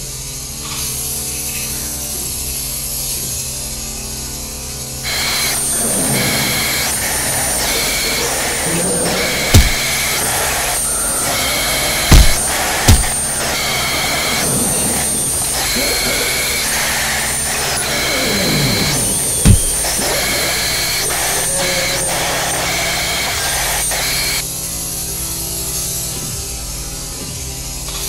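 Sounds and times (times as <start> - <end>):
harsh noise drone: 5.0 - 24.5
falling sweeps: 5.1 - 24.4
high whistling tones: 5.1 - 24.4
deep boom: 6.2 - 18.0.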